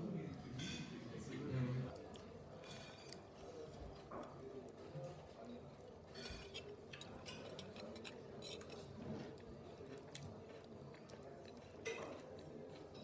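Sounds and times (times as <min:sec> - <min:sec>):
low background murmur: 0:00.0 - 0:13.0
fork and spoon clinking on plate: 0:02.6 - 0:03.3, 0:06.1 - 0:09.3.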